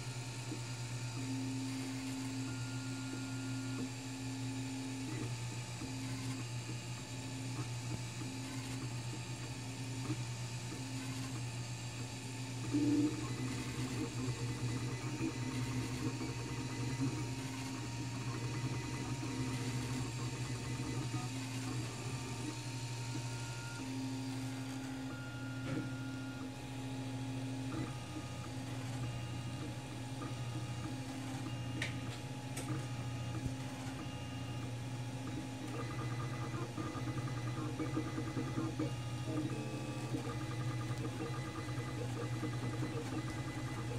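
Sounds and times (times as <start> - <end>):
steady hum: 12.2 - 43.9.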